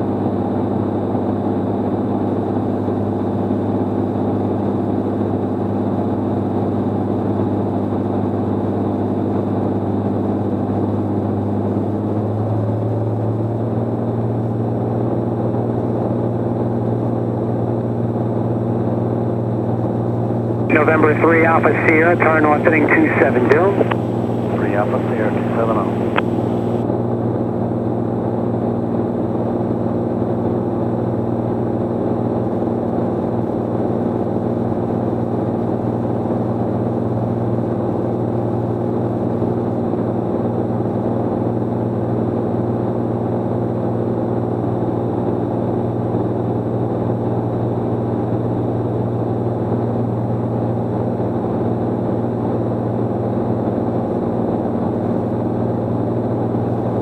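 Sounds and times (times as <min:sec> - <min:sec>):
airplane engine drone: 0:00.0 - 0:57.0.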